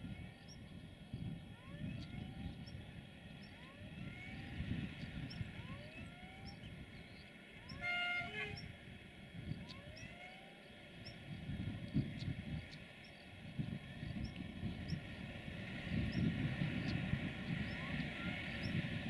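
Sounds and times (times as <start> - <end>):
locomotive engine rumble: 6.8 - 9.2
locomotive horn blast: 7.7 - 8.7.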